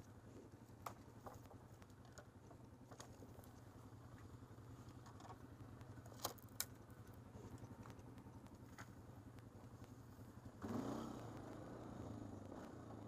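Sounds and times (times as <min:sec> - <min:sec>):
atv engine running: 0:00.0 - 0:13.0
engine revving: 0:10.4 - 0:13.0.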